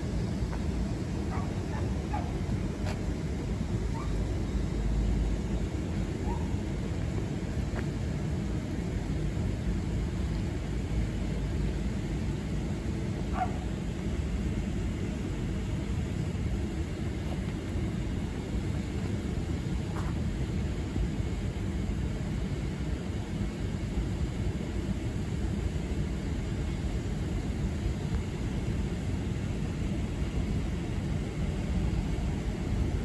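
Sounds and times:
low outdoor rumble: 0.0 - 33.0.

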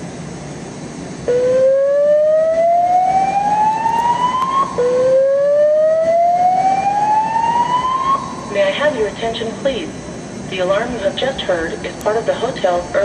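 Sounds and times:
alarm slow-whoop tone: 1.3 - 8.5.

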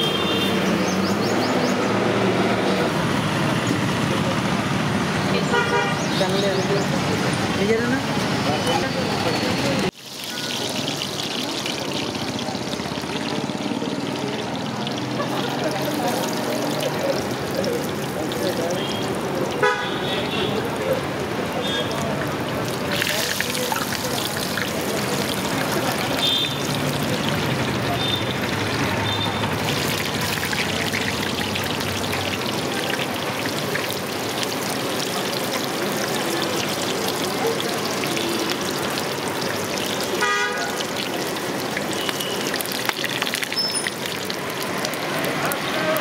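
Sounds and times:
vehicle horn toot: 0.0 - 0.6, 5.5 - 6.0, 18.8 - 20.6, 26.2 - 26.6, 29.0 - 29.5, 40.2 - 40.8, 42.0 - 42.5
hot oil sizzling: 0.0 - 46.0.

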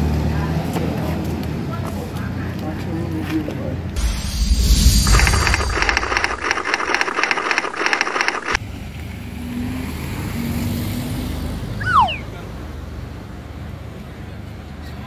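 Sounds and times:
pulsing sound effect: 4.0 - 8.6
vehicle engine running: 4.0 - 8.6.

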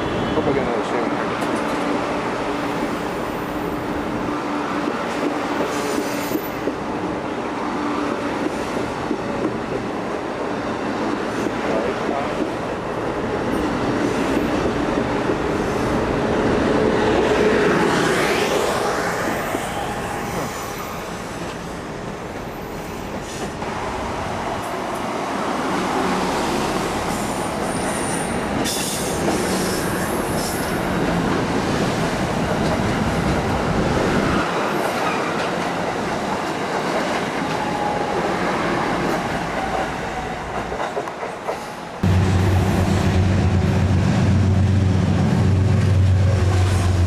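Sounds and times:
electric train rumbling on rails: 0.0 - 47.0
high-speed train passing: 0.0 - 47.0
high-pitched train squeal: 5.6 - 6.6, 18.3 - 21.2, 27.1 - 30.8.

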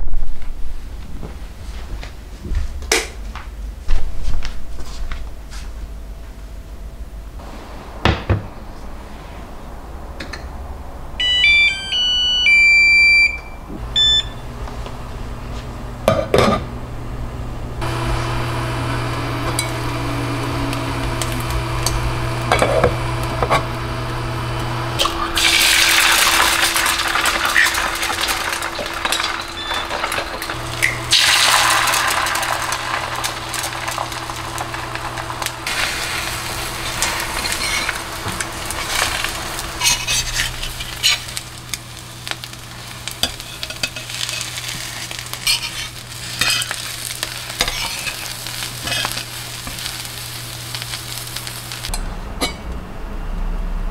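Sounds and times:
hob humming: 7.0 - 53.9
cooktop beeps: 11.2 - 14.6, 17.8 - 35.0
eggs sizzling in a frying pan: 17.8 - 51.9.

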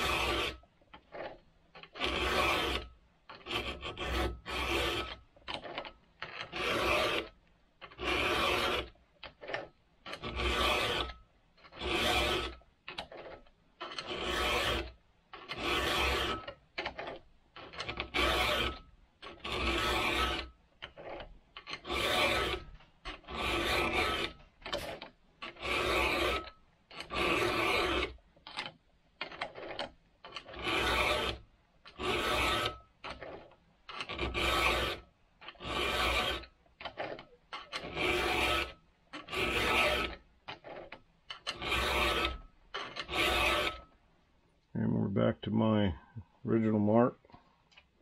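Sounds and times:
file rasping on saw chain: 0.0 - 44.0.

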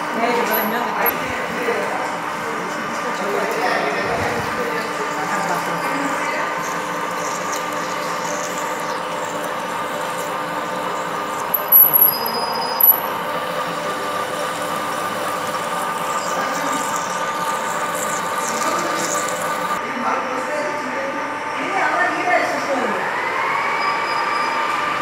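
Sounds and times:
lathe machine whine: 0.0 - 25.0
high-pitched squeal: 0.4 - 19.8.

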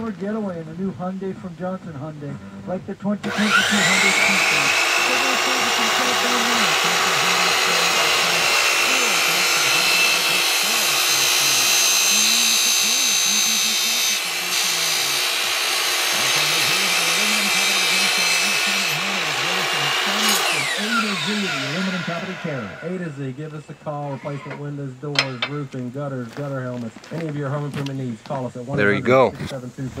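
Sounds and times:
saw blade winding down: 3.2 - 25.7
miter saw cutting aluminum: 3.2 - 25.8.

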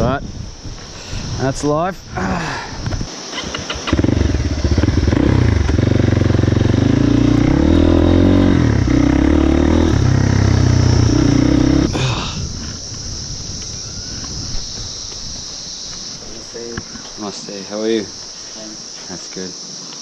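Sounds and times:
outdoor background: 0.0 - 20.0
dirt bike engine revving: 3.4 - 12.0.

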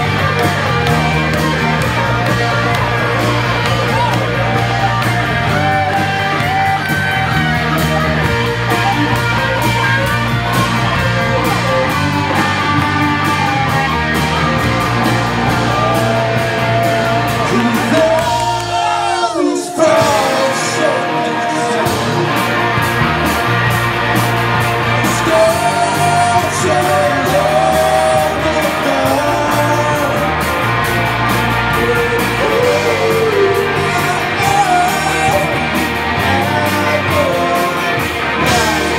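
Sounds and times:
electric guitars and drums: 0.0 - 38.9
person singing: 15.0 - 22.6, 24.8 - 30.6, 31.6 - 38.9.

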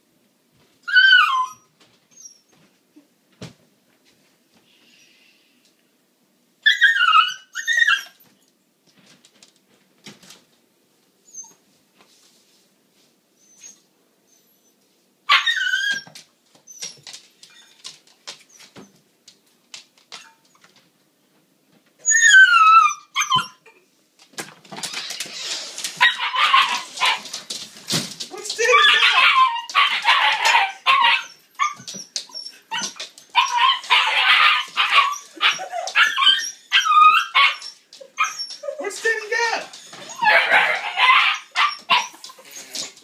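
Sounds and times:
puppy whining: 0.8 - 3.1, 6.6 - 8.3, 11.2 - 11.6, 13.4 - 19.0, 22.0 - 23.9, 24.8 - 27.4, 28.3 - 43.0.

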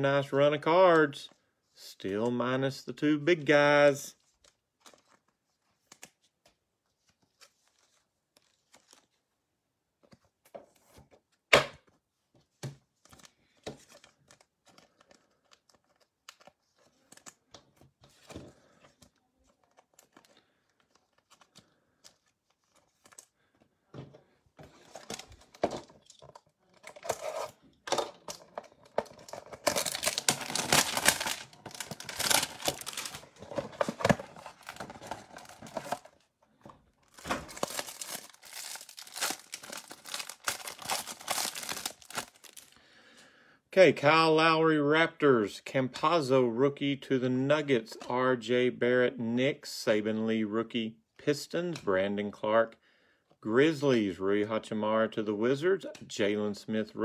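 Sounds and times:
trading cards handled: 4.2 - 9.2, 10.0 - 23.7, 24.6 - 42.8
wrapping and cardboard tearing: 29.0 - 36.2, 37.0 - 42.7.

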